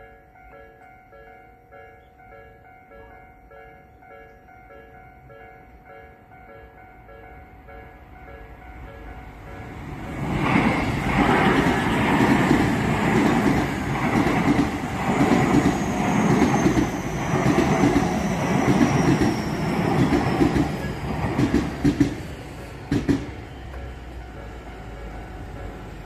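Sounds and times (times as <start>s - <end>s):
level crossing warning bells: 0.0s - 21.2s, 23.4s - 26.0s
faint high train whine: 0.0s - 26.0s
train wheels clattering on rails: 9.9s - 26.0s.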